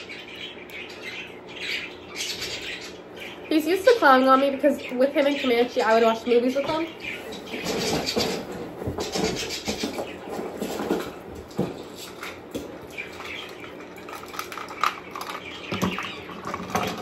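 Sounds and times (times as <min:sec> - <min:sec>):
plastic toy rustling and clicking: 0:13.2 - 0:17.0.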